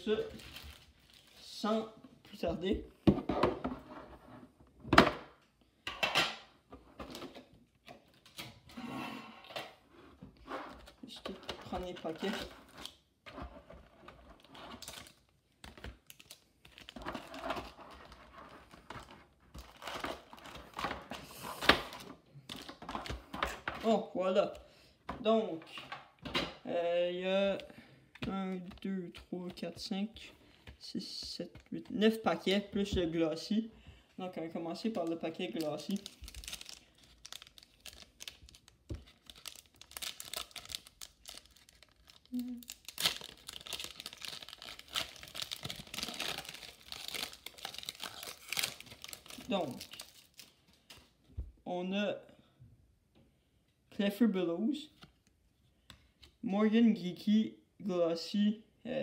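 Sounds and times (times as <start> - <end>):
foil packs crinkling: 34.9 - 51.0.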